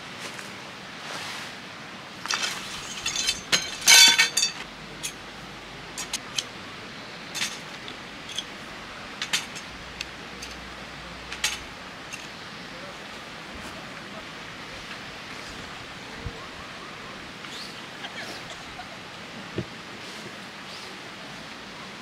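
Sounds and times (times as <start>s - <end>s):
metal tent poles clinking: 2.2s - 6.6s, 7.3s - 12.4s.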